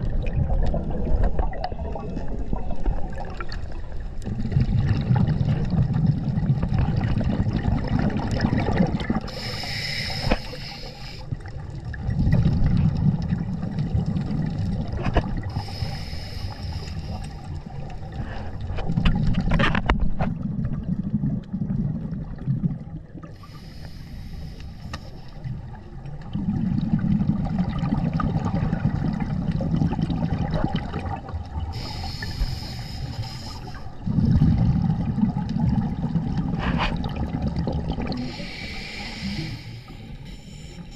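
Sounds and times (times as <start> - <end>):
exhaled bubbles rumbling: 0.0 - 23.9, 25.2 - 40.9
regulator inhale hiss: 9.3 - 11.4, 15.4 - 17.6, 23.4 - 25.5, 31.7 - 34.0, 38.1 - 40.9.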